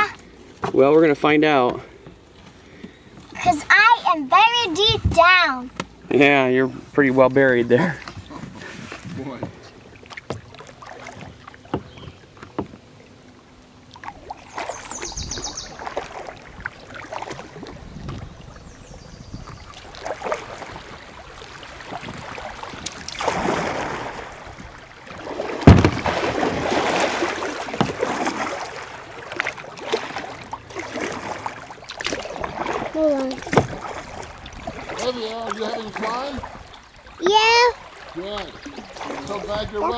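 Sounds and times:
paddle splashing water: 0.0 - 6.2, 6.8 - 39.9
sharp knock: 25.6 - 26.1.

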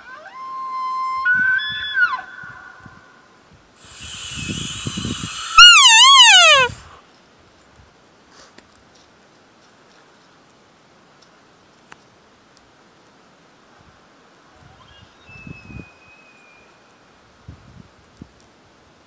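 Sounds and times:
elk bugling: 3.8 - 6.8.

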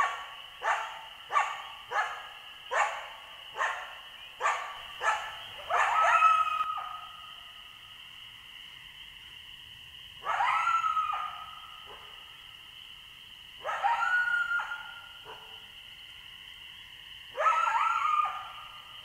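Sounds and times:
wolf howling: 5.7 - 7.0, 17.4 - 18.6.

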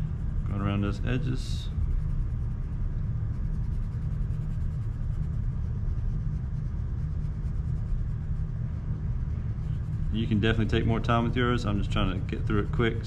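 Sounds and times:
pencil scratching on paper: 0.0 - 8.6, 9.2 - 11.0
low background rumble: 0.0 - 13.0.

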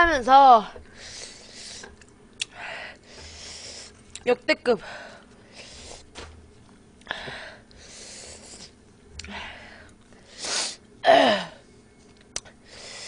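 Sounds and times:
woman breathing hard: 2.5 - 4.0, 7.0 - 8.6, 9.3 - 10.8, 12.6 - 13.0.

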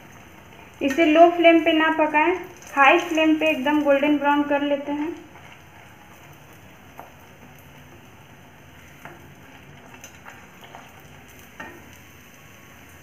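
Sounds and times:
bread sizzling in hot oil: 0.0 - 13.0
spatula tapping pan: 11.5 - 12.0.

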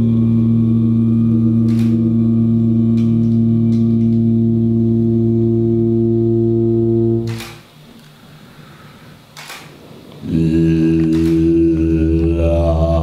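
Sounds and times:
man chanting low note: 0.0 - 7.4, 10.2 - 13.0
faint clicks: 11.0 - 12.3.

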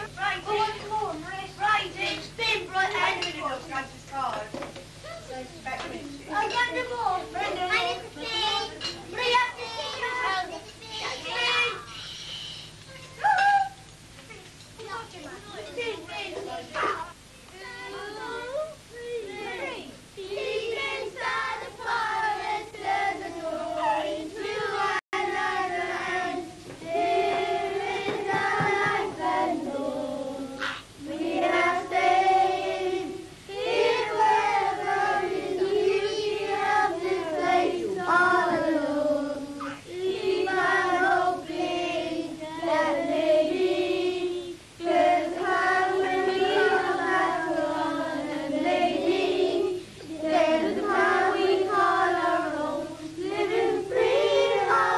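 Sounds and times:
children singing: 20.2 - 54.9
women singing: 20.4 - 54.9.

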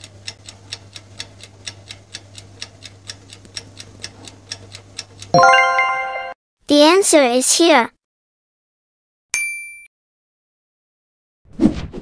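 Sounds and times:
clock ticking: 0.0 - 5.9
bright bell chime: 5.4 - 6.4.

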